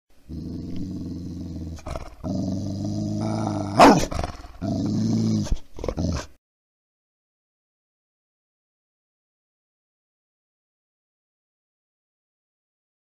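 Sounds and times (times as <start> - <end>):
dog growling: 0.3 - 6.4
dog snarl: 0.4 - 6.4.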